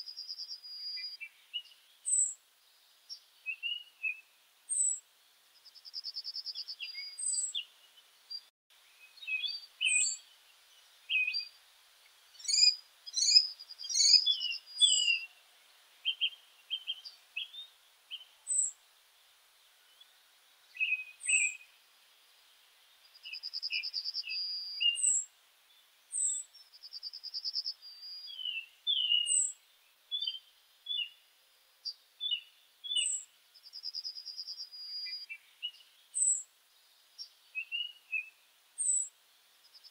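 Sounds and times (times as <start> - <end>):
small birds chirping and singing: 0.0 - 39.9
bird trill: 9.1 - 10.3, 12.4 - 15.4, 16.0 - 18.8, 20.8 - 21.6, 23.2 - 25.3, 26.1 - 31.2, 32.2 - 36.4, 37.6 - 39.1.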